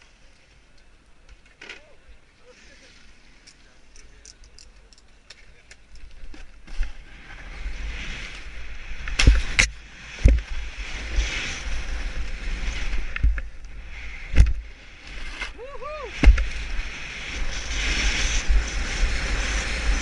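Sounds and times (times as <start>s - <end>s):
snowboard scraping over snow: 6.6s - 20.0s.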